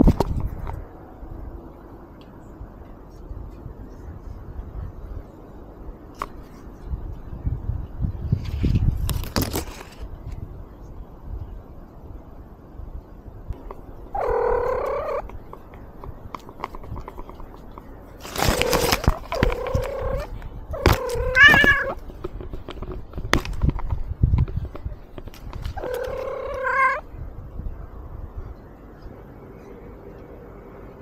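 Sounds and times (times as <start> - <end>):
cat meowing: 14.2 - 15.2, 19.3 - 22.0, 25.8 - 27.0
knocks and rustling: 20.8 - 26.3.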